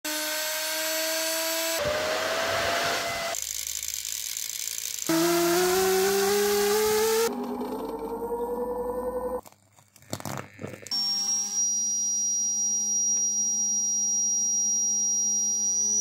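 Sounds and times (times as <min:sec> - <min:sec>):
electric motor whine: 0:00.1 - 0:04.0, 0:04.9 - 0:09.4.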